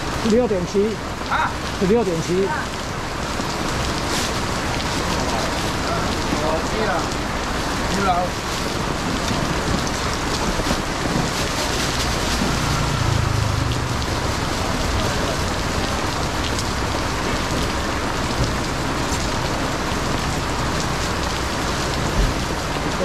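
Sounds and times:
heavy rain pouring: 0.0s - 23.0s
low rumble: 11.2s - 17.8s.

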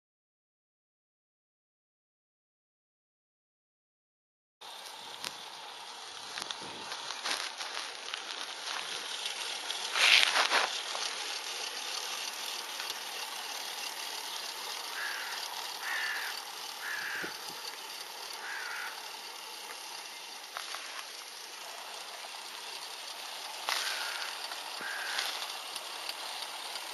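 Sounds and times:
outdoor hiss: 4.6s - 26.9s
bird calling: 14.8s - 19.2s, 23.6s - 26.0s.

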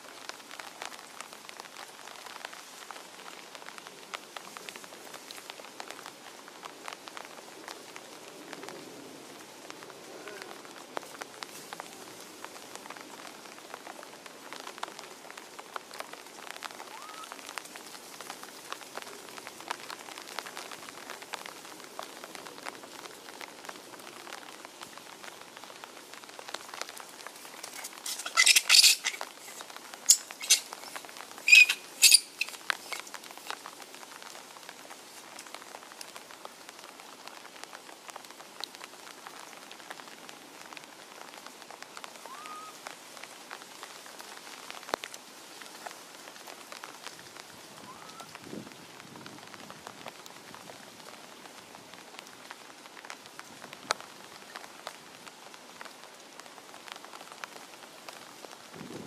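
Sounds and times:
rain pattering on foliage: 0.0s - 59.0s
high-pitched animal calls: 16.9s - 17.3s, 27.6s - 33.1s, 42.2s - 42.8s.

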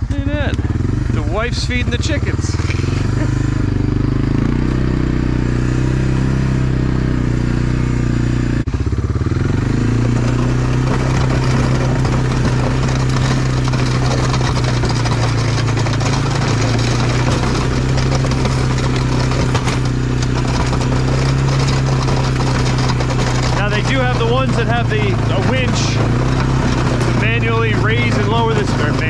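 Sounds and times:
atv engine running: 0.0s - 29.0s.

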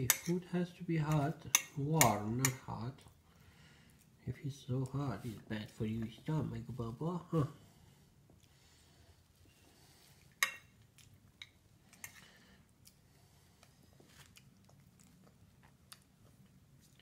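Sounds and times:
child chewing: 7.6s - 17.0s.

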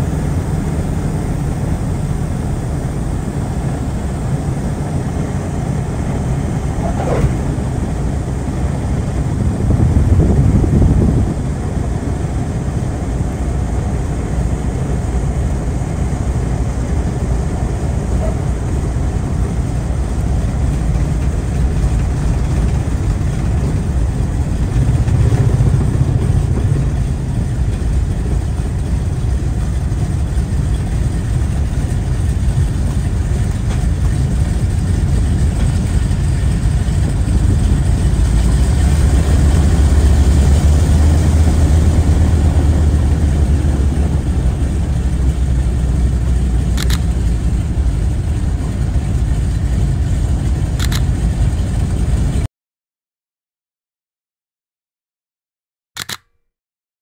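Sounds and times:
aircraft engines droning: 0.0s - 52.5s
sharp click: 46.8s - 47.1s, 50.8s - 51.1s, 56.0s - 56.5s.

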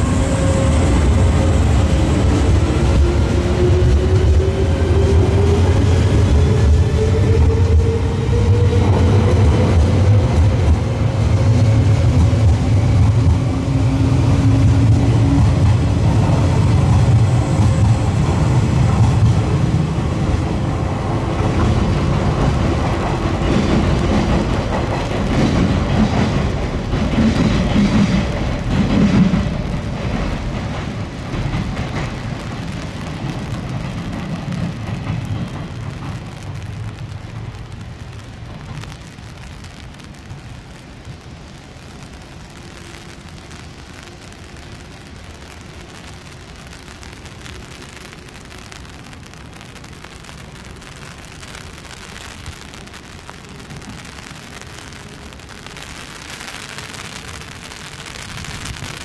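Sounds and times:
train wheels rumbling on rail: 0.0s - 48.3s.

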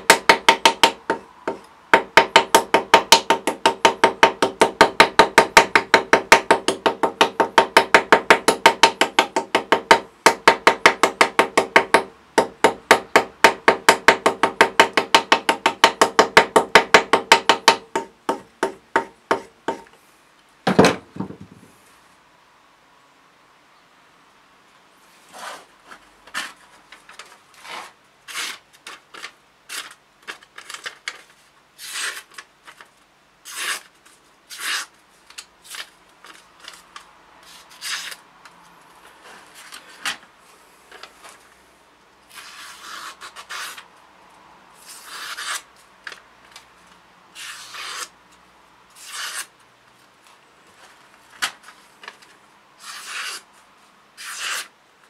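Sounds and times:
knife slicing paper: 27.6s - 30.9s, 31.8s - 32.4s, 33.4s - 35.0s, 37.4s - 38.2s, 42.3s - 43.8s, 44.8s - 45.7s, 47.4s - 48.1s, 48.9s - 49.5s, 52.8s - 53.5s, 54.2s - 54.7s.

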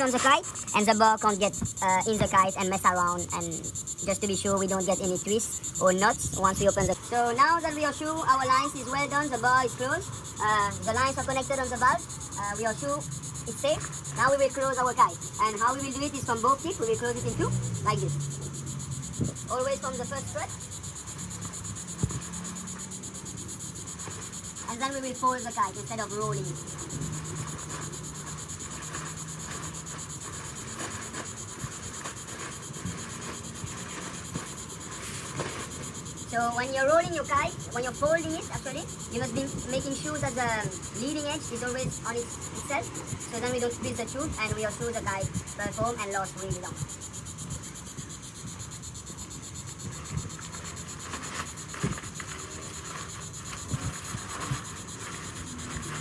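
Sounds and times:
wind rumble on microphone: 0.6s - 7.2s, 16.7s - 22.4s, 26.7s - 56.0s.

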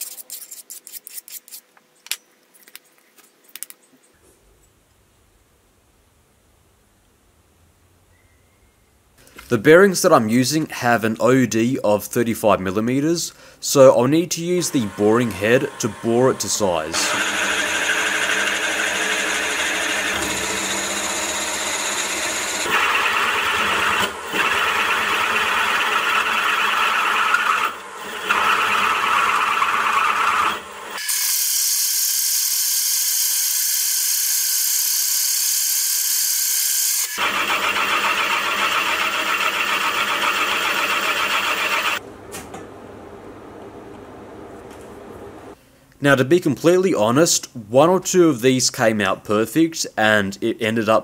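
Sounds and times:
milling machine motor whine: 14.6s - 31.0s, 32.0s - 42.0s.

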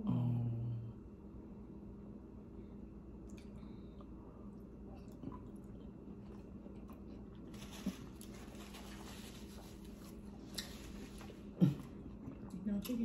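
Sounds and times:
low steady hum: 0.0s - 13.0s
soft chewing: 3.1s - 13.0s
paper napkin rustling: 7.5s - 11.5s.

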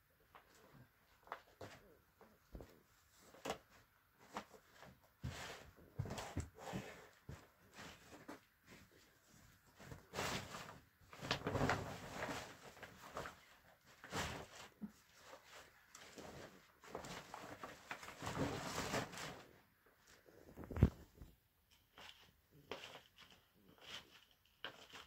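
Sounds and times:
plastic tarpaulin rustling: 9.8s - 21.3s.

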